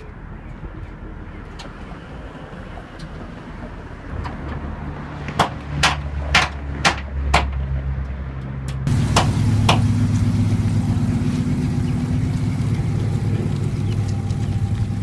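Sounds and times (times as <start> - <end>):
sharp pops: 8.9 - 10.3
car engine idling: 8.9 - 15.0.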